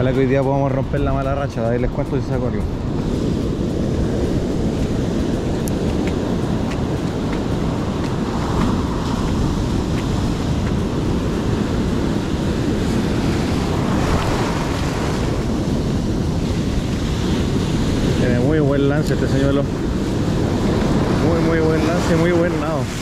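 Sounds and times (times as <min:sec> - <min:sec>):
ocean surf breaking: 0:00.0 - 0:23.0
wind buffeting microphone: 0:00.0 - 0:23.0.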